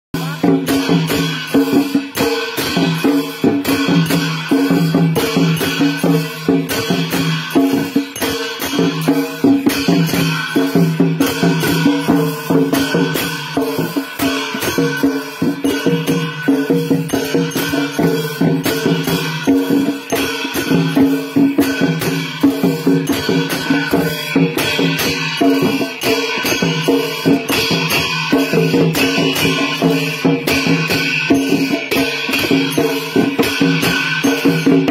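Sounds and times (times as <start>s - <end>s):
drums: 0.1s - 34.9s
cymbals clashing: 0.2s - 34.9s.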